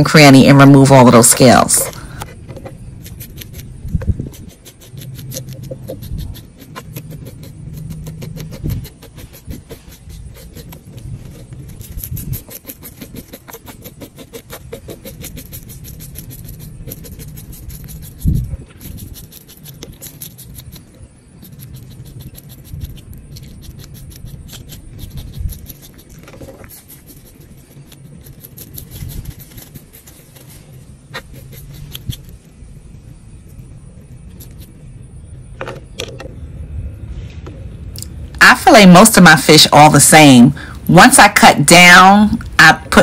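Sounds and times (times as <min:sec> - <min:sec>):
steady low rumble: 0:00.0 - 0:43.0
fish scaler scraping scales: 0:02.9 - 0:32.4.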